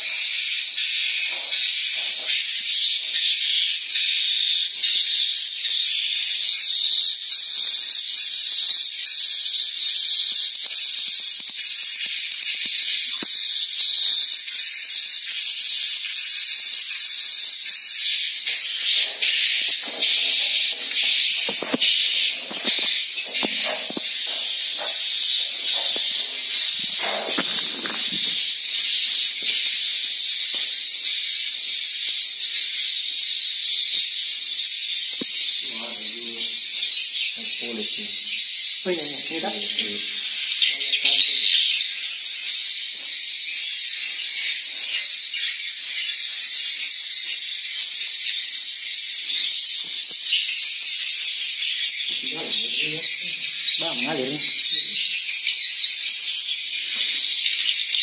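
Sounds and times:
high-pitched bird twittering from speakers: 0.0 - 58.0
swiftlets twittering: 18.3 - 31.4.

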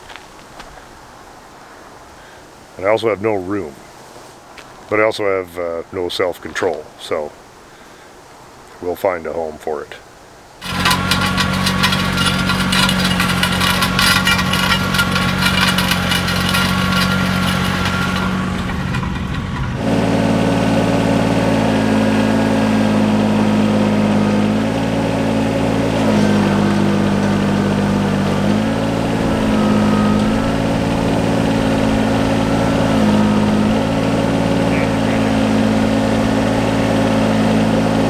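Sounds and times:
engine idling: 10.6 - 38.0
engine running with rapid clatter: 10.6 - 38.0.

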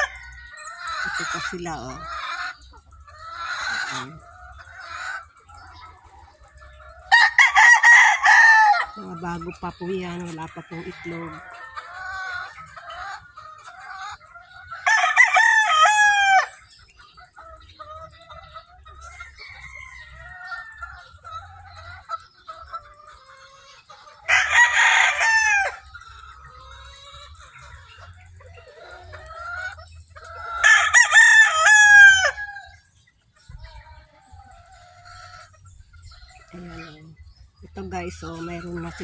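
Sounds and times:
hens clucking softly: 0.0 - 15.4, 16.4 - 39.0
rooster crowing: 7.1 - 8.9, 14.8 - 16.6, 30.6 - 32.8.

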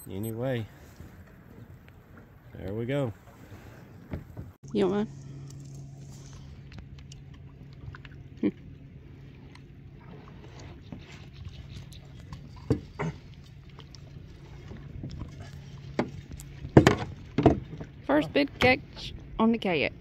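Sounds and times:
steady low hum: 4.6 - 20.0.

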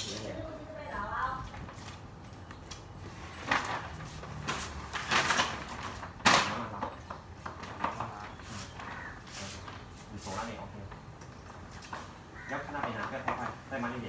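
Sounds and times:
plastic sheet rustling: 3.0 - 14.0
plastic sheet snap: 4.4 - 6.9.

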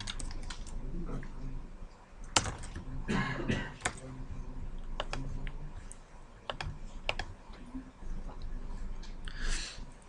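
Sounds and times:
faint low hum: 0.0 - 10.0
keyboard keystrokes: 2.2 - 2.8.

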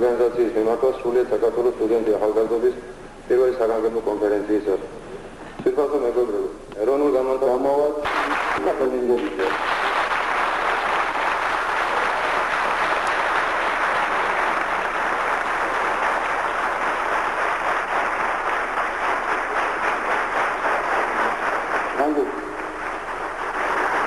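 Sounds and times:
crowd applauding: 8.0 - 24.0.

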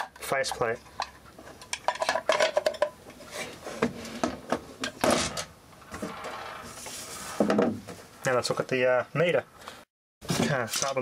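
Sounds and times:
plastic and metal parts clattering: 0.0 - 6.4, 10.3 - 11.0.

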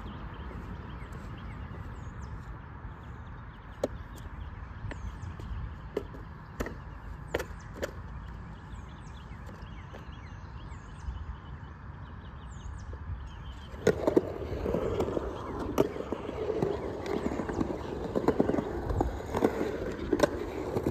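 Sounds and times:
outdoor background hum: 0.0 - 20.9
skateboard knocking on concrete: 3.7 - 10.2, 13.6 - 20.9.

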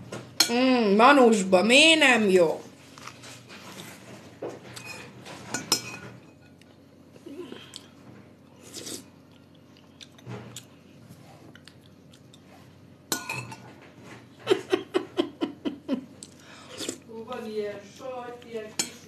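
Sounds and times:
chewing and mouth sounds: 8.6 - 12.6.

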